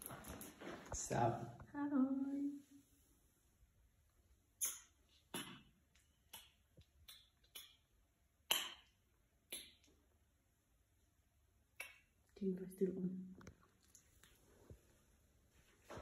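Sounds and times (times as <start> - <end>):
kissing smacks: 4.6 - 5.6, 6.3 - 7.9, 9.5 - 9.9.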